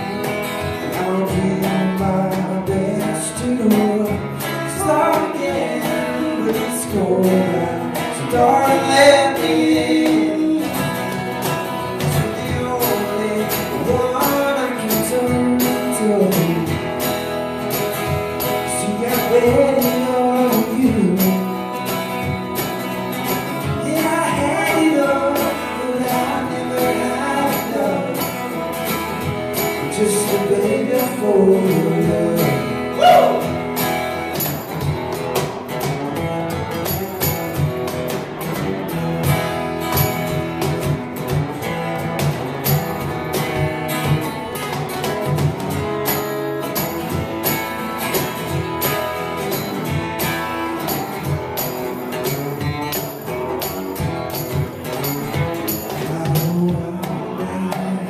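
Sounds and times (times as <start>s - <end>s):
man singing: 0.0s - 17.2s, 18.4s - 21.9s, 23.6s - 33.6s, 55.7s - 58.0s
hand percussion beat: 0.0s - 58.0s
strummed acoustic guitar: 0.0s - 58.0s.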